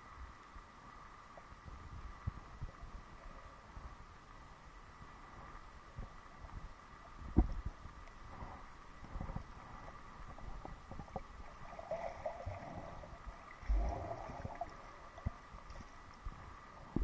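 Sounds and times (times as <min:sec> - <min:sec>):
underwater gurgling bursts: 0:11.0 - 0:15.6.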